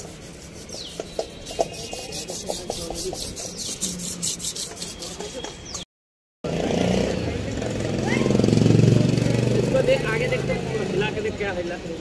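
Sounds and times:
quick rubbing strokes: 0:00.0 - 0:05.5.

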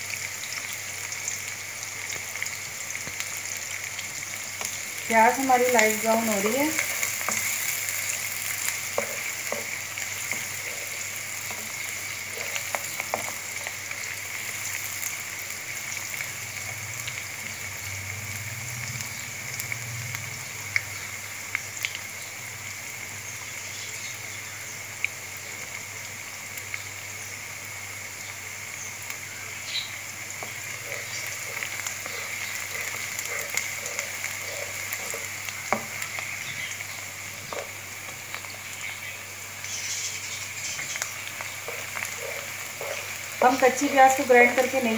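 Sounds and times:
onions sizzling in oil: 0:00.0 - 0:44.9
spatula stirring: 0:05.9 - 0:15.0, 0:30.4 - 0:36.0, 0:41.6 - 0:44.8.

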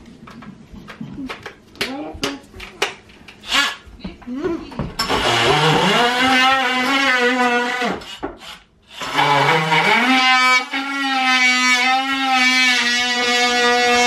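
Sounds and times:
oscillating multi-tool buzzing: 0:05.1 - 0:14.0.

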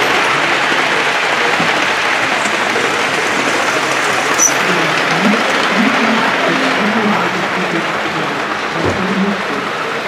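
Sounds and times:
model train wheels clattering: 0:00.0 - 0:06.2.

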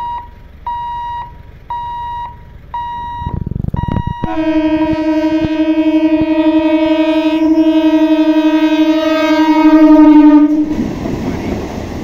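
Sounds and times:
train horn blast: 0:04.2 - 0:11.0.

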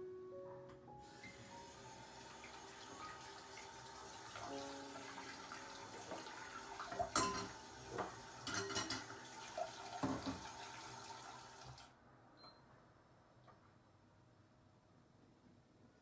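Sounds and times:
tap running into metal sink: 0:06.0 - 0:09.2, 0:09.8 - 0:10.8
knocks and clinks against sink: 0:07.0 - 0:09.1, 0:10.0 - 0:10.5.

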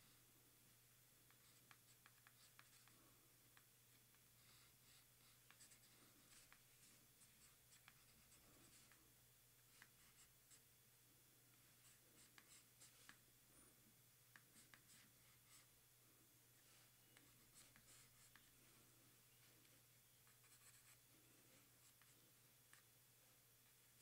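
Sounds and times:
pencil scratching on paper: 0:01.3 - 0:03.0, 0:04.4 - 0:09.0, 0:11.7 - 0:13.2, 0:14.3 - 0:15.7, 0:16.6 - 0:18.5, 0:20.2 - 0:21.0.

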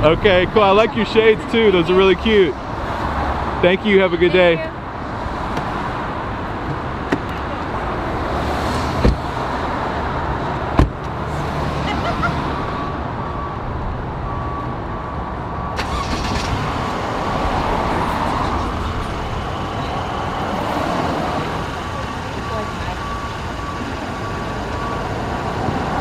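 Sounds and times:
street traffic: 0:00.0 - 0:26.0
car door slam: 0:09.0 - 0:09.3, 0:10.7 - 0:11.0.

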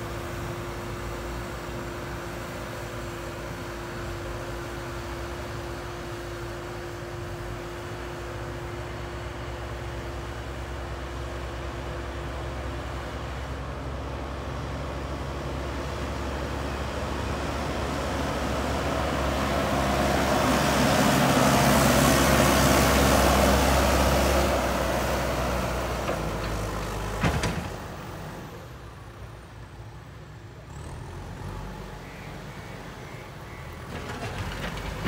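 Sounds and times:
diesel engine passing by: 0:00.0 - 0:35.0.

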